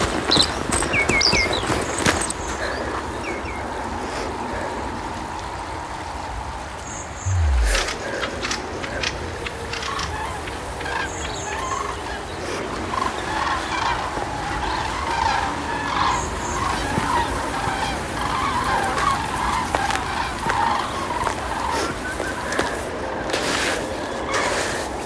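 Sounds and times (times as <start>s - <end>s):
flock of birds calling: 0.0s - 25.0s
steady low rumble: 7.2s - 9.5s.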